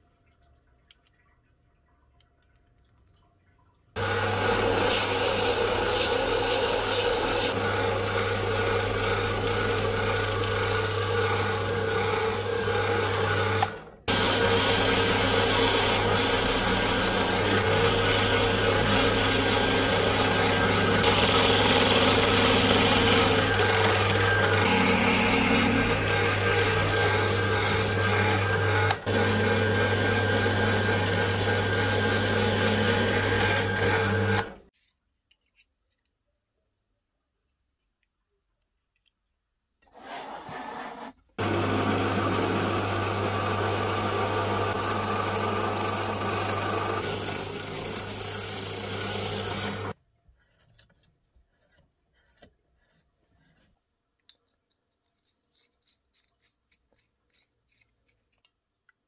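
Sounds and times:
drill press motor hum: 4.0 - 34.7, 41.4 - 50.0
drill bit rasping into wood: 14.1 - 34.5, 42.4 - 50.0.

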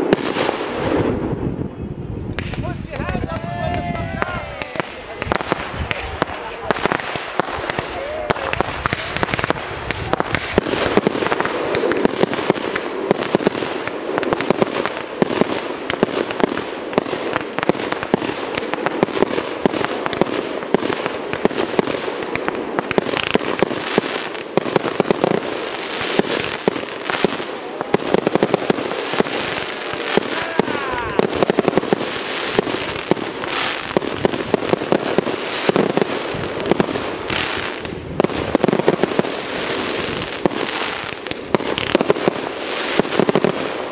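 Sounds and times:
fireworks bangs: 0.0 - 43.9
fireworks crackling: 0.0 - 43.9.

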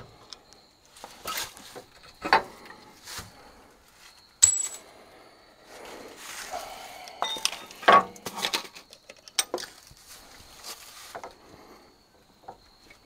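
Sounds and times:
metal tools clinking: 4.4 - 4.9, 7.1 - 9.9.

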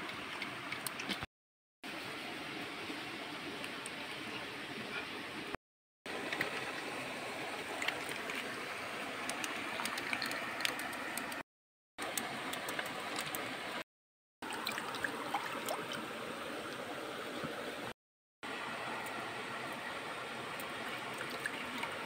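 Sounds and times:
running stream water: 1.9 - 11.4, 12.0 - 13.8, 14.4 - 22.0.

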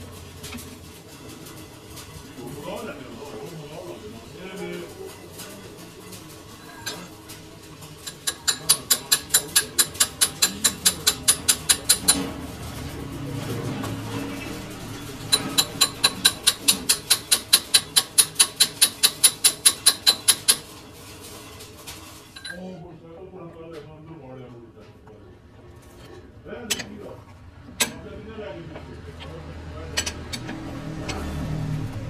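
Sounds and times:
rapid metal-on-metal strikes: 4.6 - 22.3.

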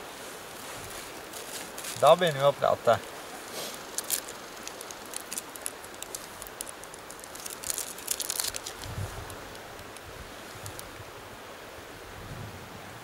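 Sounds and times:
river rushing: 0.0 - 13.0
plastic wrapper crinkling: 1.3 - 10.0, 10.6 - 10.9.

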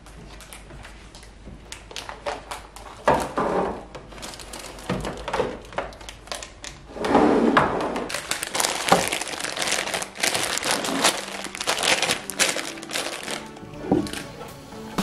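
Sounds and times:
plastic packets crinkling: 0.1 - 3.4, 4.0 - 6.9, 8.1 - 14.6
plastic bins knocking: 7.6 - 14.6.

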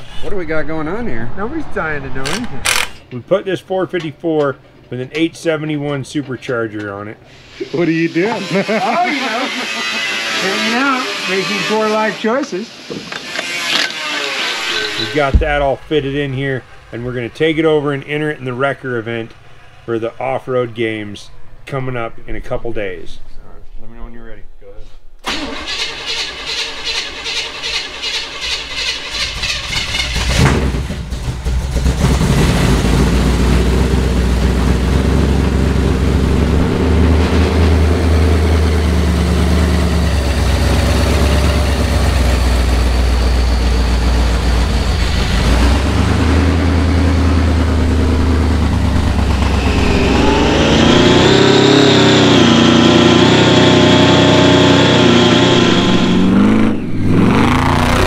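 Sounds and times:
starter motor cranking: 25.2 - 30.5
car engine running: 31.0 - 53.2.

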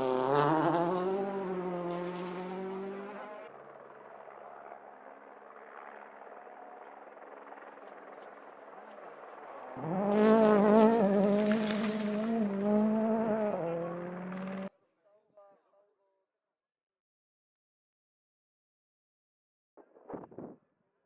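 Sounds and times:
rally car engine revving: 0.0 - 5.3, 8.2 - 14.7.

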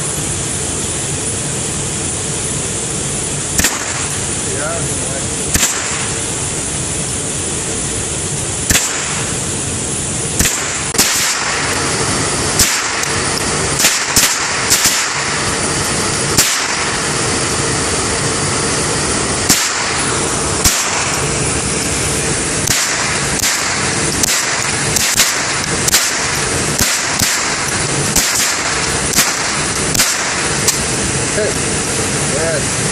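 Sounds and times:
steady rushing background noise: 0.0 - 32.9
rifle shots indoors: 13.8 - 15.2, 19.5 - 20.0, 22.6 - 30.4.

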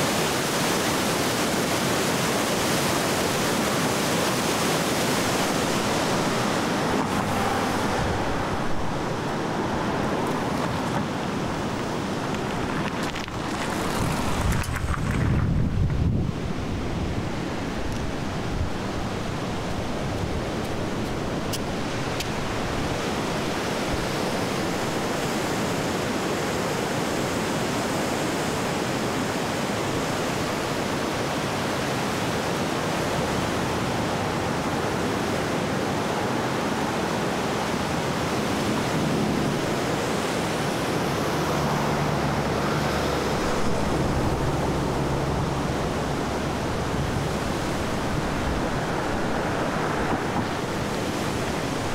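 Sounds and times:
river rushing: 0.0 - 51.9
traffic engine hum: 4.9 - 24.9, 33.0 - 51.9.

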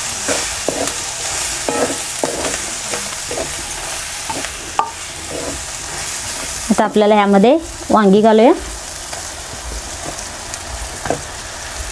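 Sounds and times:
food sizzling in hot oil: 0.0 - 11.9
wooden spatula scraping a pan: 0.2 - 6.7.

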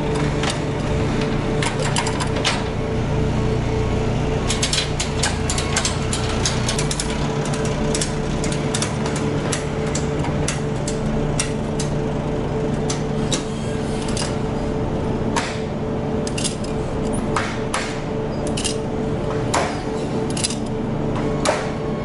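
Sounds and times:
engine running: 0.0 - 22.0
sharp metallic clicks and knocks: 4.5 - 12.0, 16.2 - 20.8.

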